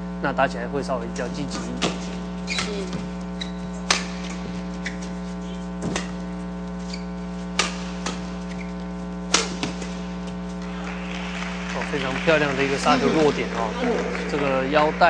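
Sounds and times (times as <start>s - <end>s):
electrical mains hum: 0.0s - 15.0s
racket hitting shuttlecock: 3.8s - 5.1s, 7.5s - 8.6s, 9.3s - 10.4s.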